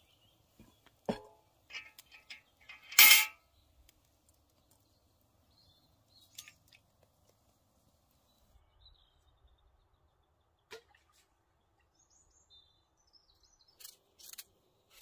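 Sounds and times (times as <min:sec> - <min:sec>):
forest background: 0:00.0 - 0:15.0
metallic clank of iron pot: 0:01.1 - 0:03.4.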